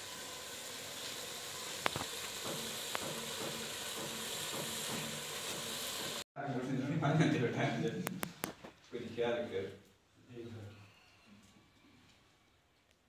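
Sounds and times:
curry sizzling over fire: 0.0s - 6.3s.

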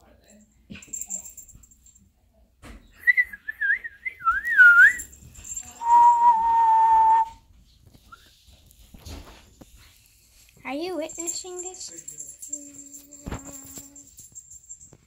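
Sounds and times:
person whistling: 3.0s - 5.1s, 5.8s - 7.4s.

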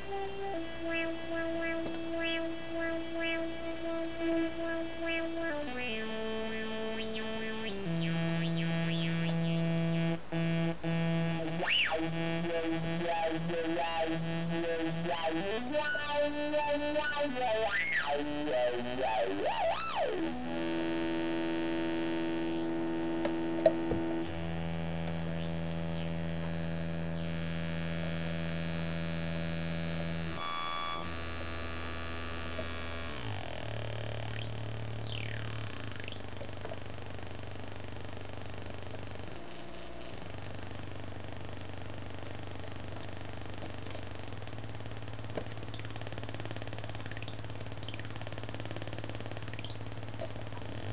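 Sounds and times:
buzzy synthesizer tone: 0.0s - 37.4s
click: 22.6s - 23.8s.

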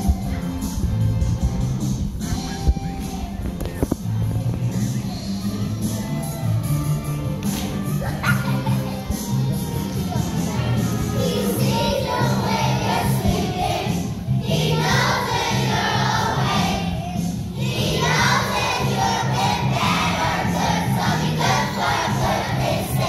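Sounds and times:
instrumental backing music: 0.0s - 23.0s
children's choir singing: 5.1s - 23.0s.

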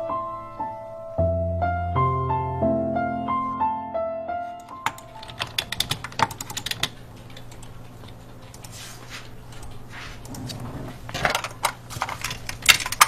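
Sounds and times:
slow piano melody: 0.0s - 7.6s
computer keyboard typing clicks: 4.6s - 8.8s.

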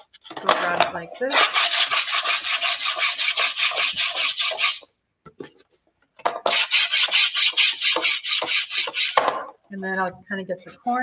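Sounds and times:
sanding block scratching paper: 1.3s - 4.9s, 6.5s - 9.2s.

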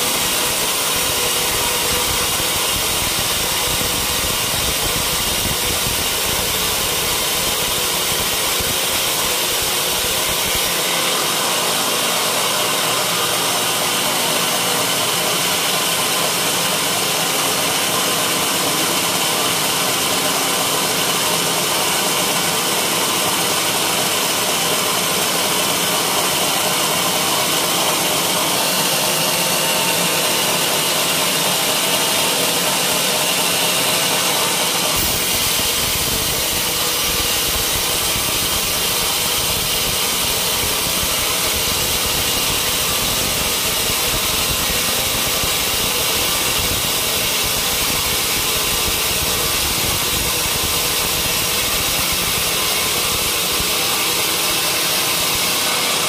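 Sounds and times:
band saw cutting through log: 0.0s - 56.0s.

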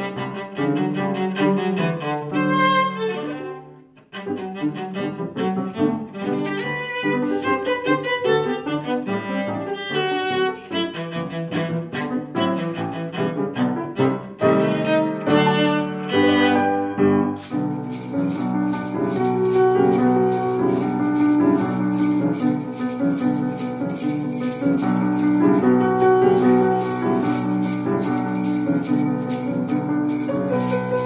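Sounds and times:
piano accompaniment: 0.0s - 31.0s
jingle bells shaken: 17.4s - 31.0s.

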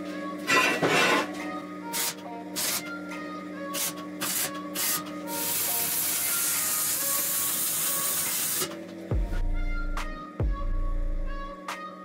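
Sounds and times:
faint background music: 0.0s - 12.0s
arc welding sizzling hiss: 1.9s - 2.8s, 3.8s - 8.8s.

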